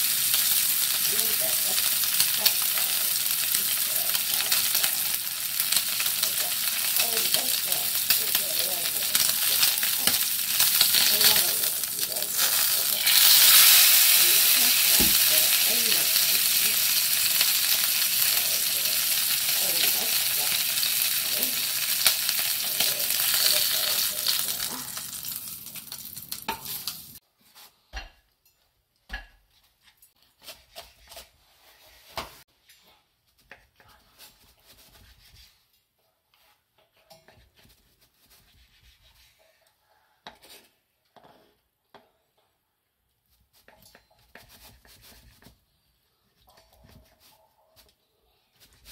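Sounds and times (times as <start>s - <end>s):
steak sizzling in a pot: 0.0s - 27.2s.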